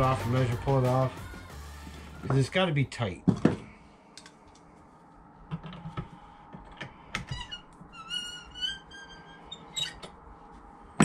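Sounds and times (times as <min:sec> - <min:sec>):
metal squeaking on wood: 0:07.2 - 0:10.2.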